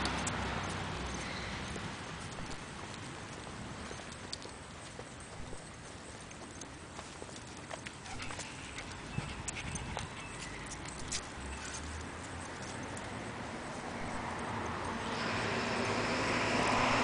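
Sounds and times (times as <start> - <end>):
light clicks and ticks: 0.0 - 13.2
footsteps on concrete: 0.0 - 14.4
outdoor background noise: 0.0 - 17.0.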